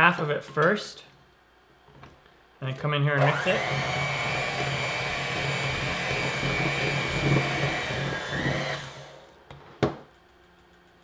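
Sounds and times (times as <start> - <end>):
electric hand mixer whining: 3.2 - 9.3.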